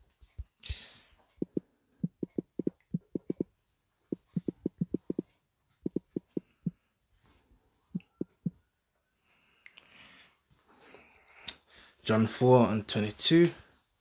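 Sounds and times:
fingertip taps on touchscreen: 0:01.4 - 0:03.5, 0:04.1 - 0:05.2, 0:05.8 - 0:06.8, 0:08.0 - 0:08.5.

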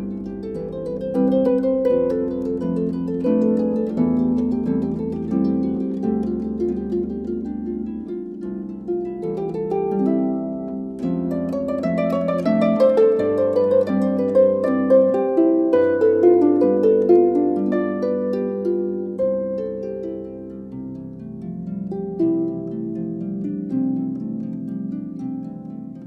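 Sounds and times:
solo harp playing: 0:00.0 - 0:26.0.

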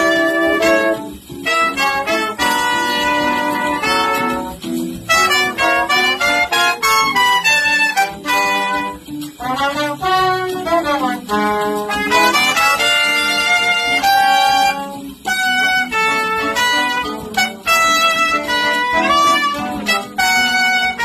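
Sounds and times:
horn trio playing jazz: 0:00.0 - 0:21.0.

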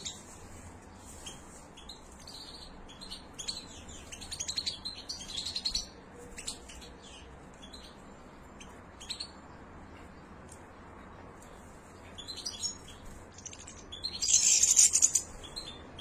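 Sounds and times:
goldfinches chirping: 0:12.1 - 0:16.0.

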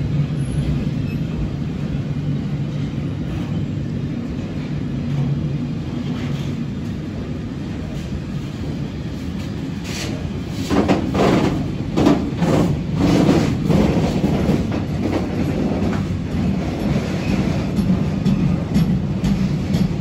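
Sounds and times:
train wheels rumbling on rails: 0:00.0 - 0:20.0
train wheel clacks: 0:09.8 - 0:20.0.

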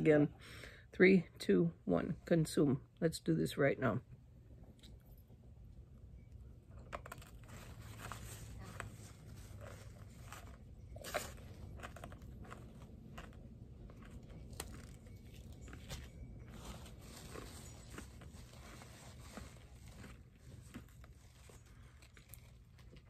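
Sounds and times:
candy being chewed crunching: 0:06.7 - 0:23.0.

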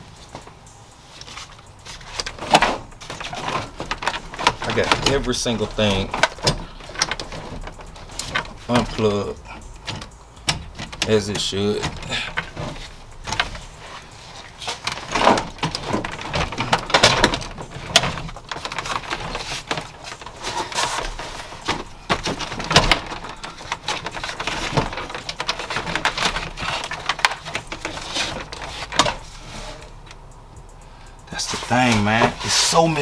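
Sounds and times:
plastic clicks and knocks: 0:14.8 - 0:29.2.

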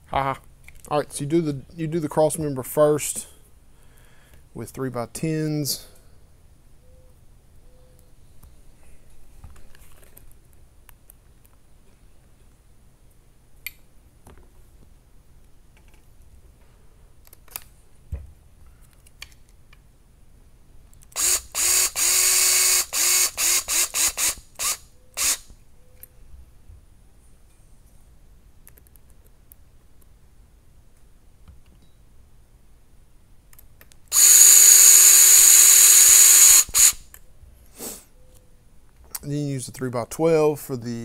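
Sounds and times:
cordless electric screwdriver running: 0:21.2 - 0:25.4, 0:34.1 - 0:37.0.

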